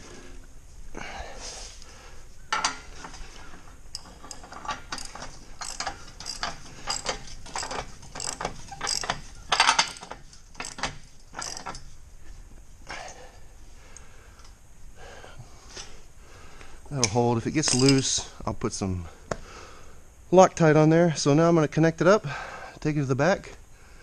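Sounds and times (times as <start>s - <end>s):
ratchet wrench clicking: 3.9s - 11.9s.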